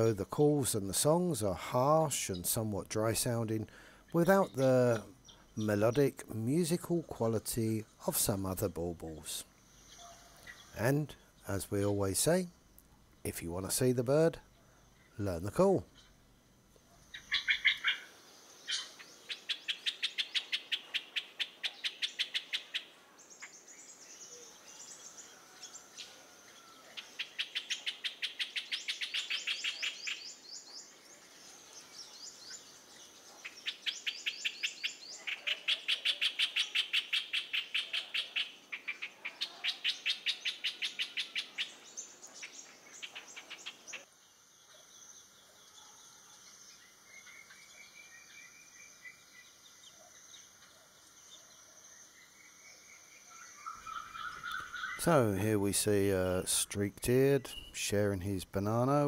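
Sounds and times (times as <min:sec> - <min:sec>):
bird harsh chatter: 0:17.1 - 0:18.1.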